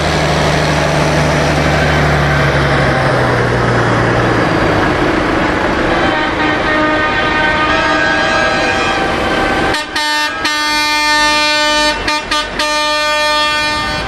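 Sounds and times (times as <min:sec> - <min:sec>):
loud air horn blasts: 0:05.9 - 0:14.0
vehicle horns honking: 0:06.0 - 0:14.0.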